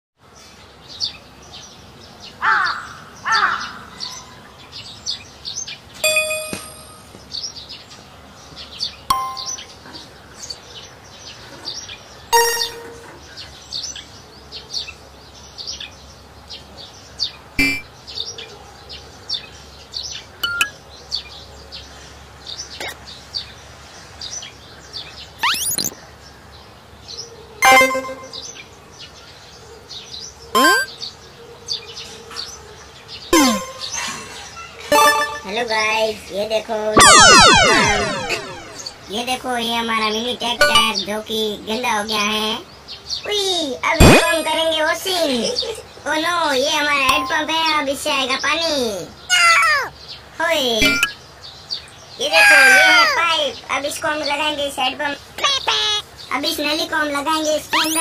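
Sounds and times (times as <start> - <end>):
small birds chirping faintly: 0.2 - 58.0
crow cawing: 2.4 - 3.9
rising bird call: 25.4 - 26.0, 37.0 - 39.1.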